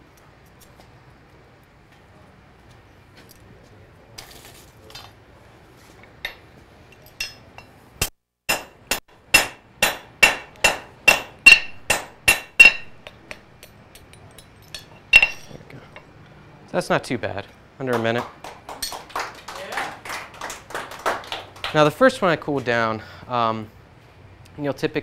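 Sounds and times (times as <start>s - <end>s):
hammer striking iron on anvil: 7.2s - 15.6s.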